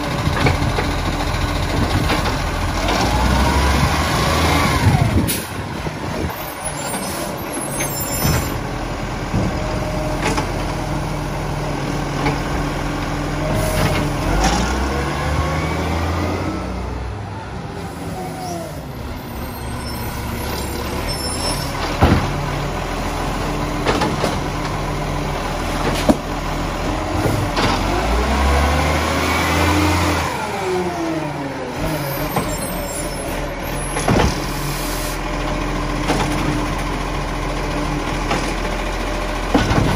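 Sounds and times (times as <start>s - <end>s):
diesel truck engine: 0.0s - 39.9s
air brake hiss: 34.6s - 35.2s.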